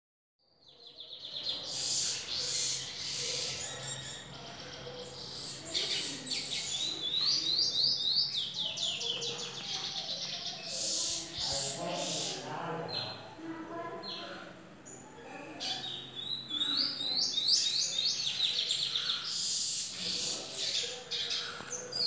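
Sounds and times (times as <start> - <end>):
finch singing twittering song: 0.7 - 13.2.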